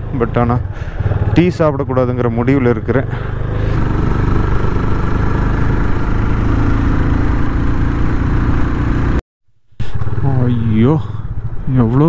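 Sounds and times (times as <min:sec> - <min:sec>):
motorcycle engine running: 0:00.0 - 0:09.2, 0:09.8 - 0:12.0.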